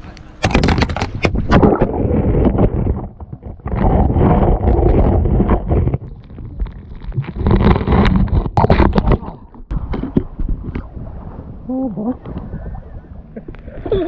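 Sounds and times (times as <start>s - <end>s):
wind buffeting microphone: 0.0s - 14.0s
camera handling rumble: 0.4s - 1.6s.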